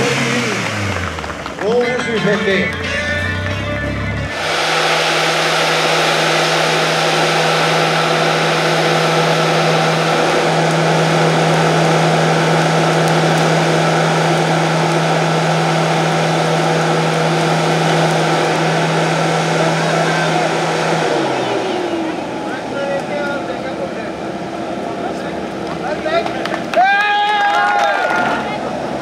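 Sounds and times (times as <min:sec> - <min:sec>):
van engine at high revs: 0:00.0 - 0:29.0
tyres spinning on ground: 0:00.1 - 0:02.8.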